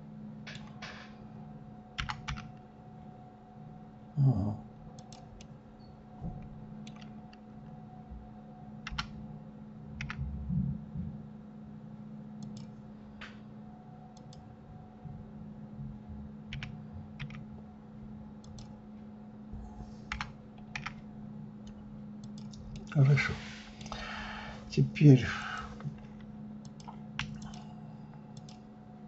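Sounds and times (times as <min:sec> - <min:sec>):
low steady hum: 0:00.0 - 0:29.0
keyboard and mouse clicks: 0:00.5 - 0:00.9, 0:02.0 - 0:02.6, 0:05.0 - 0:05.5, 0:06.8 - 0:07.4, 0:08.8 - 0:09.2, 0:10.0 - 0:10.2, 0:12.4 - 0:13.4, 0:14.2 - 0:14.5, 0:16.5 - 0:17.4, 0:18.4 - 0:18.8, 0:20.1 - 0:21.0, 0:21.6 - 0:23.0, 0:25.8 - 0:27.7, 0:28.3 - 0:28.6.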